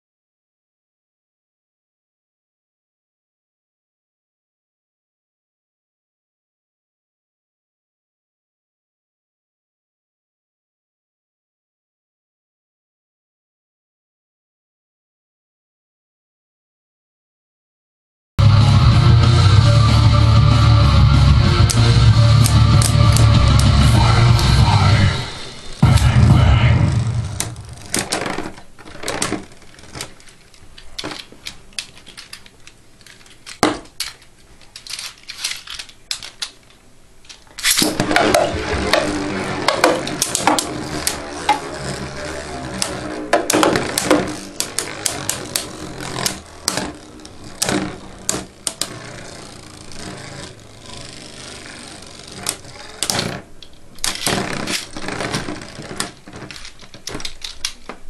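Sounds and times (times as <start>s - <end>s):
plastic tops clicking and clacking: 27.8s - 41.8s, 52.1s - 58.0s
spinning tops whirling: 37.6s - 53.1s.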